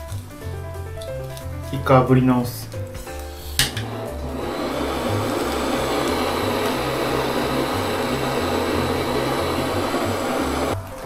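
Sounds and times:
gas torch flame hissing: 3.0s - 10.8s.

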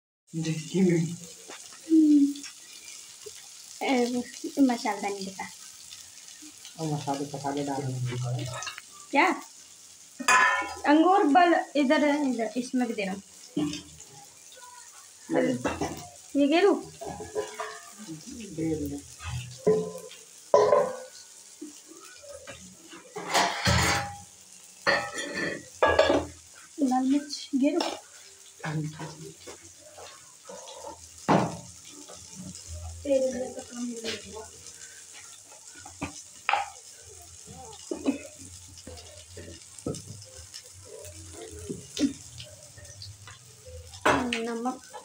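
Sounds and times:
noodles sizzling: 0.3s - 45.0s
spatula scraping in a wok: 24.9s - 26.8s.

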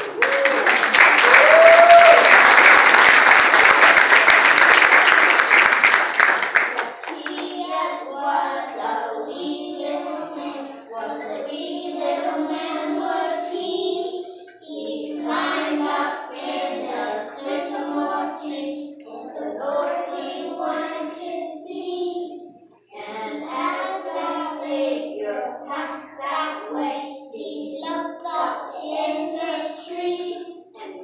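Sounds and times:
children singing: 0.0s - 31.0s.

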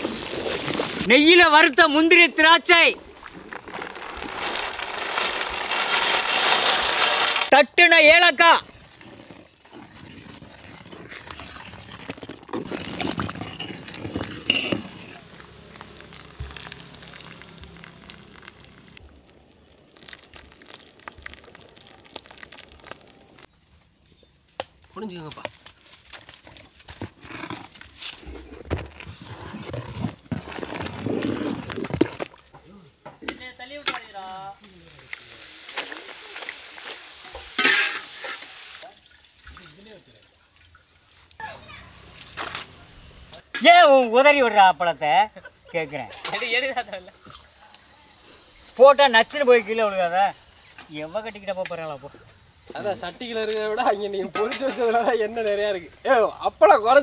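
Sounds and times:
frying in hot oil: 0.0s - 2.8s, 10.3s - 23.6s, 33.7s - 42.6s, 52.7s - 56.4s
water pouring: 0.0s - 7.5s, 8.6s - 23.5s, 30.3s - 32.6s, 34.9s - 41.4s
person speaking: 1.0s - 3.0s
small crackles: 2.6s - 7.6s, 9.1s - 23.9s, 24.5s - 38.9s, 52.4s - 56.1s
liquid splashing and bubbling: 3.0s - 7.4s, 8.6s - 23.5s, 30.4s - 32.5s.

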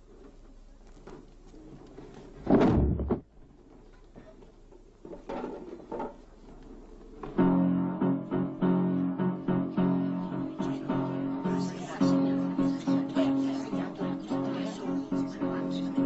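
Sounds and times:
person collapsing among plastic chairs: 2.0s - 3.3s
plucked-string music: 7.2s - 16.0s.

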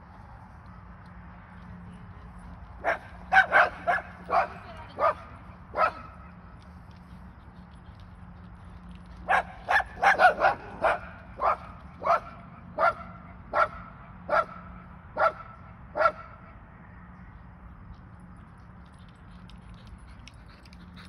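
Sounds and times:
dog barking: 2.8s - 6.1s, 9.3s - 14.6s, 15.2s - 15.4s, 16.0s - 16.3s.

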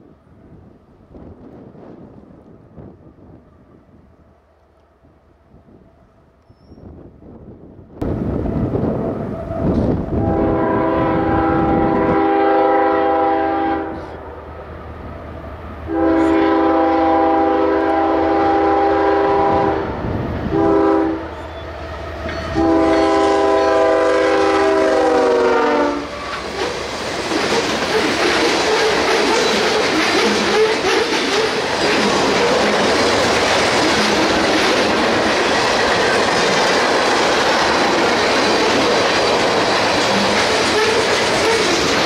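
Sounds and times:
train rumbling and clattering by: 0.0s - 42.0s
locomotive air horn: 9.4s - 14.2s, 15.9s - 21.6s, 22.5s - 26.3s, 40.7s - 41.8s.

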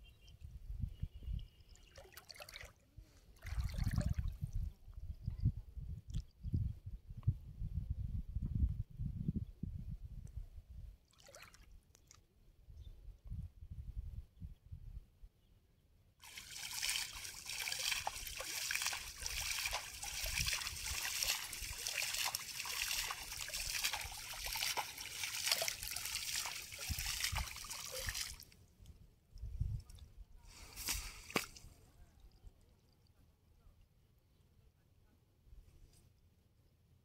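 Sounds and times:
water splashing and trickling: 1.3s - 4.7s, 11.1s - 12.2s, 16.2s - 33.2s.

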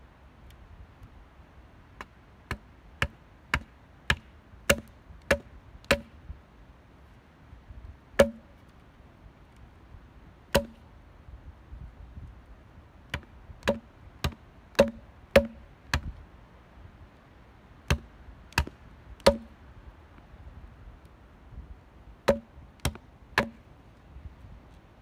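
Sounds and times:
hatchet chopping wooden pole: 2.0s - 6.2s, 8.2s - 8.7s, 10.5s - 10.8s, 13.1s - 16.2s, 17.9s - 19.6s, 22.2s - 23.6s.

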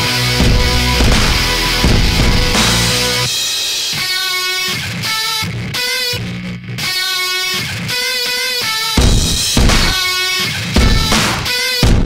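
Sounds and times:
electric guitar notes ringing: 0.0s - 3.3s.

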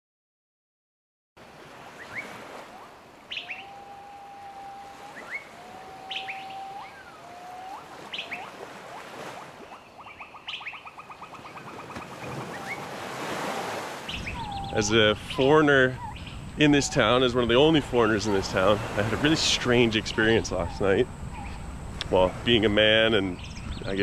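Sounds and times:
birds chirping: 1.7s - 24.0s
bird whistles: 2.0s - 12.9s, 14.1s - 14.8s.

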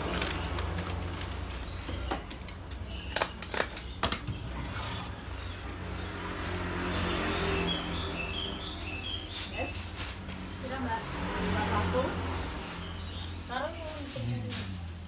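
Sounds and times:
food wrapping: 0.0s - 11.4s.

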